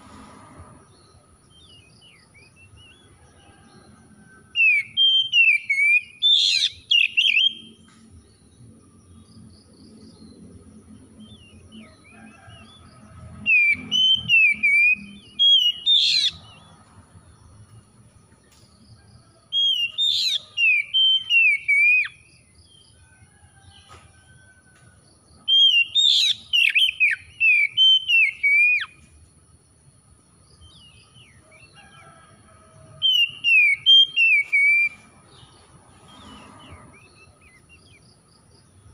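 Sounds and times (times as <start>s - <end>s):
bird singing whistled phrases: 4.6s - 7.7s, 13.5s - 16.4s, 19.6s - 22.2s, 25.5s - 28.9s, 33.1s - 35.0s.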